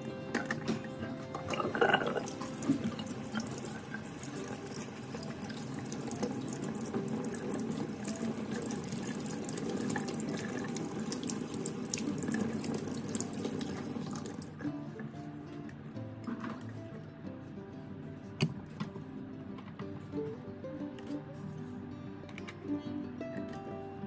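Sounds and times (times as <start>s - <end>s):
water splashing over filter: 0.0s - 14.8s.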